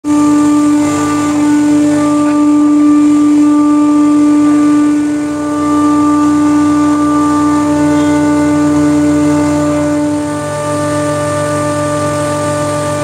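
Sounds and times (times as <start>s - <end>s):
machinery drone: 0.0s - 13.0s.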